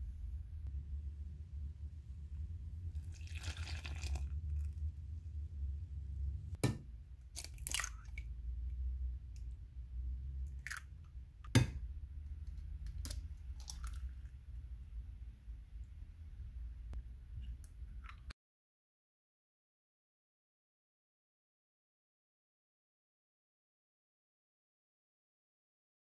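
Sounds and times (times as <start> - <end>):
low steady hum: 0.0 - 18.3
liquid splashing into a bowl: 3.0 - 4.7, 7.4 - 8.3, 12.8 - 14.3.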